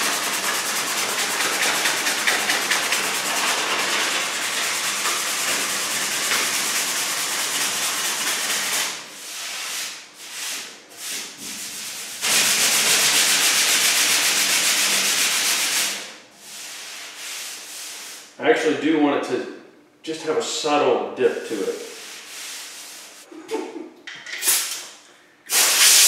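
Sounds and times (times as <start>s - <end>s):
hand sanding a steel panel: 0.0s - 18.3s.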